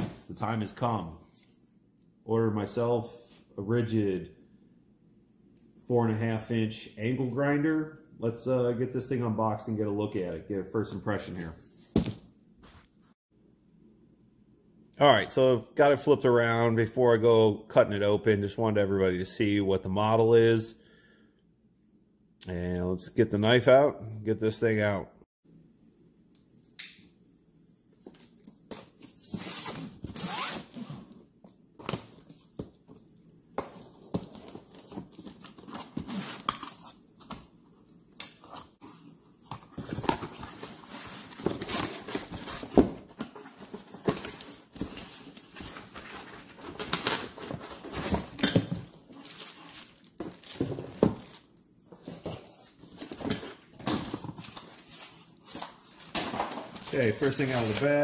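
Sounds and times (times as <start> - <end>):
plastic packaging rustling: 38.4 - 58.0.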